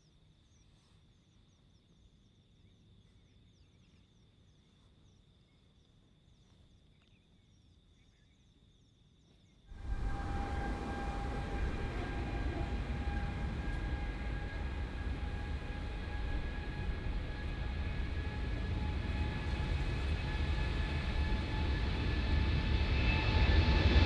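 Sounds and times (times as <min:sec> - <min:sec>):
steady high buzz: 0:09.7 - 0:22.6
jet engines at high power: 0:09.7 - 0:24.0.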